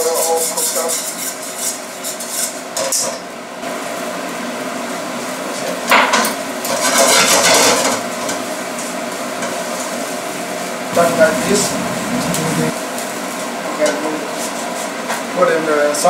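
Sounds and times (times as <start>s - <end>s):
spoon scraping a pan: 0.0s - 3.1s, 6.7s - 8.4s
steady hiss: 9.8s - 13.2s.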